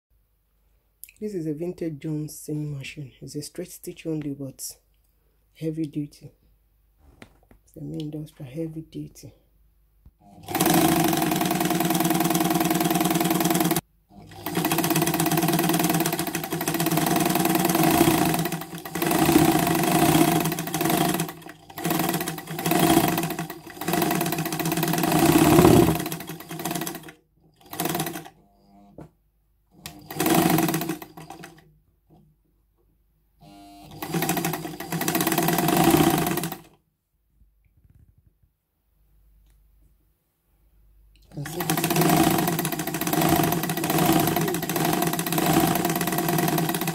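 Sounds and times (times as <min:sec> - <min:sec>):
sewing machine stitching: 0:10.2 - 0:28.9, 0:29.8 - 0:31.6, 0:33.5 - 0:36.7, 0:41.3 - 0:46.9.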